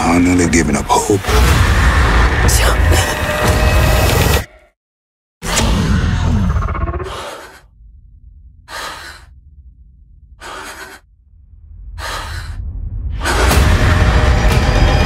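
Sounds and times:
low rumbling drone: 0:05.6 - 0:15.0
loud rumble: 0:07.7 - 0:15.0.

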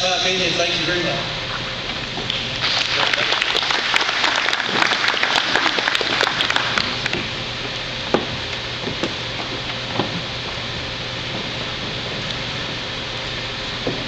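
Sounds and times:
audience applauding: 0:02.6 - 0:07.0.

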